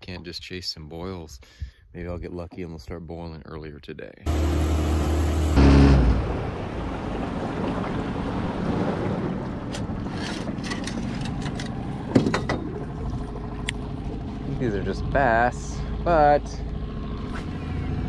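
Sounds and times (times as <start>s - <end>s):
boat motor running: 4.3s - 18.0s
water around boat: 4.3s - 18.0s.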